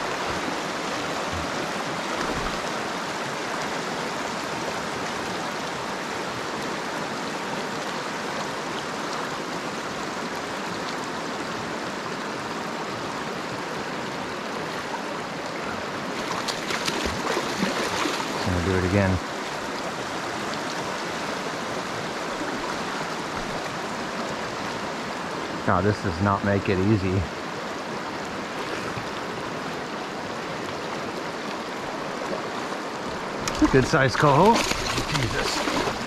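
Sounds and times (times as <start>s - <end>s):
river running over gravel: 16.0s - 25.4s, 26.4s - 36.0s
fish splashing in water: 16.2s - 18.4s, 33.5s - 36.0s.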